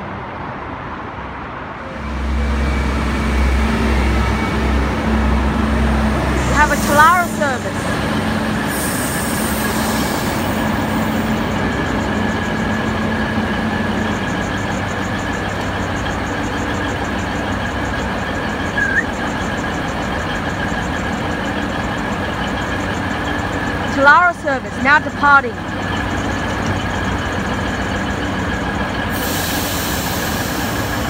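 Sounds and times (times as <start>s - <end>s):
diesel railcar engine idling: 1.5s - 31.0s
constant high whine: 1.6s - 31.0s
brief high squeak: 18.8s - 19.1s.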